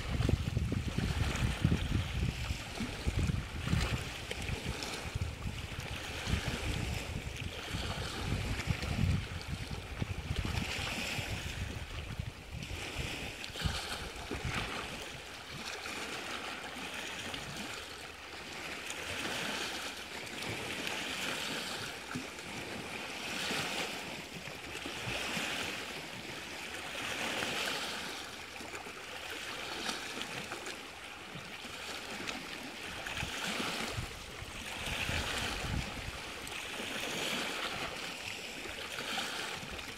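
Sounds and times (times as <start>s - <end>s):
wind rumbling on microphone: 0.0s - 16.2s, 32.1s - 38.0s
waves washing against rocks: 0.0s - 39.9s.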